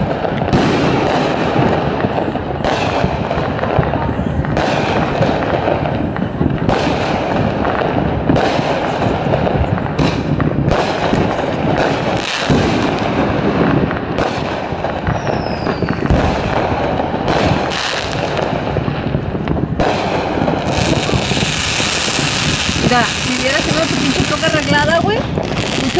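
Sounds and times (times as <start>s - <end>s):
fireworks bangs and crackles: 0.0s - 25.9s
falling firework whistle: 15.0s - 16.4s.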